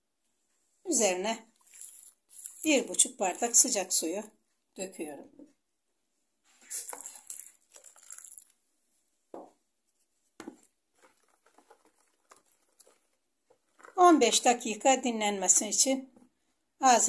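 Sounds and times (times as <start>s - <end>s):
spoon stirring wet grain: 1.1s - 4.2s, 6.7s - 8.6s, 10.4s - 14.8s.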